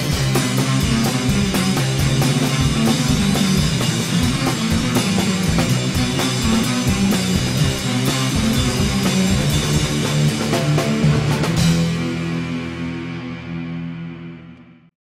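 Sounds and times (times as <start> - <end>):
rock music: 0.0 - 14.9.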